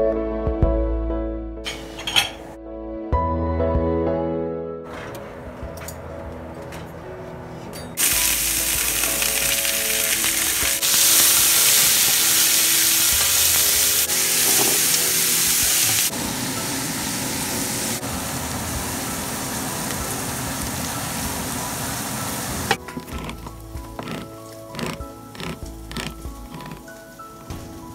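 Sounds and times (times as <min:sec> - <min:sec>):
vegetables sizzling in hot oil: 0:08.0 - 0:22.7.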